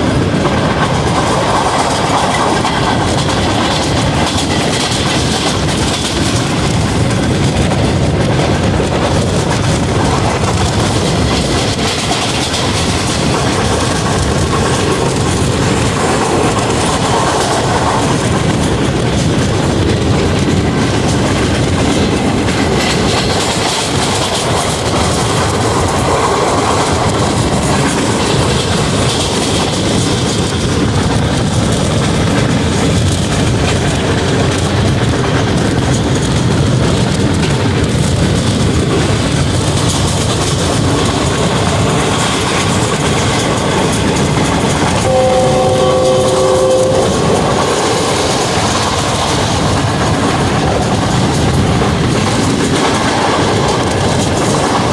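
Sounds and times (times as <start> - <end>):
train wheels on rails: 0.0 - 54.9
multi-tone train horn: 44.8 - 49.2.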